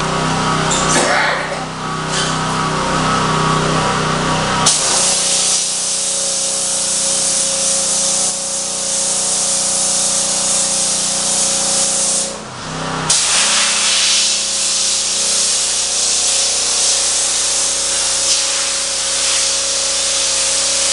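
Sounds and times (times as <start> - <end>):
pressure washer spray hiss: 4.6 - 12.4, 13.1 - 20.9.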